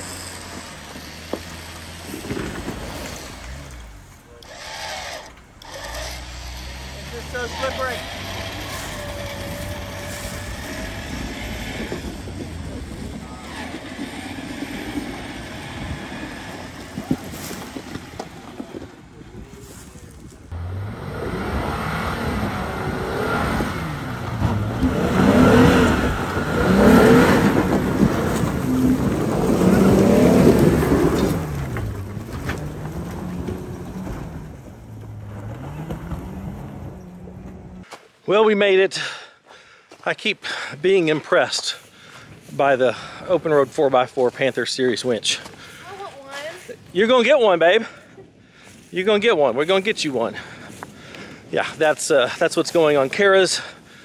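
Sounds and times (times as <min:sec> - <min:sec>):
car engine running: 0:00.0 - 0:19.2, 0:20.2 - 0:37.8
electric winch pulling: 0:03.2 - 0:16.8.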